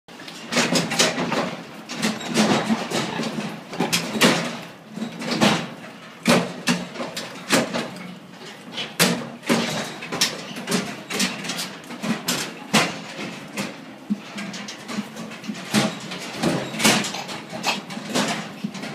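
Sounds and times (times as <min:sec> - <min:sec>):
hooves clattering on metal floor: 0:00.1 - 0:18.9
hooves knocking steel bars: 0:00.2 - 0:18.9.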